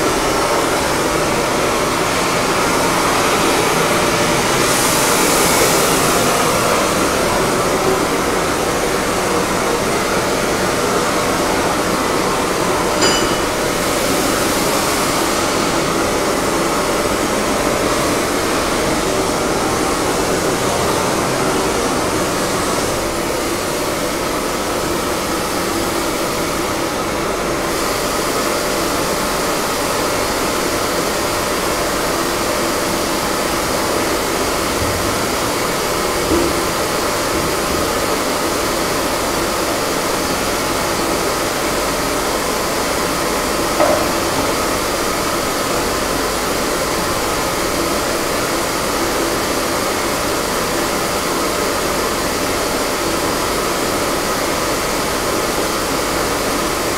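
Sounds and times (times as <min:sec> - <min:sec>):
machine blowing air: 0:00.0 - 0:56.9
tool knocking on bell: 0:13.0 - 0:13.8, 0:43.8 - 0:44.3.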